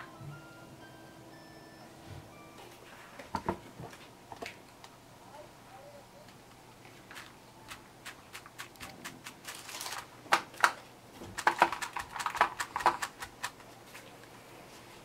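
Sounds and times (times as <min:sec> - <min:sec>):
chocolate pieces clicking onto tray: 0:11.4 - 0:13.6.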